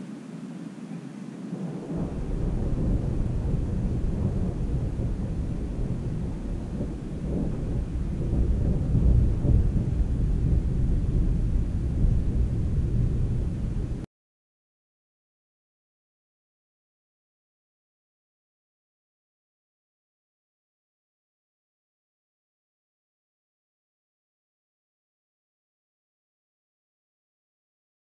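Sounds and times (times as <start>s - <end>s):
rolling thunder rumble: 0.8s - 14.1s.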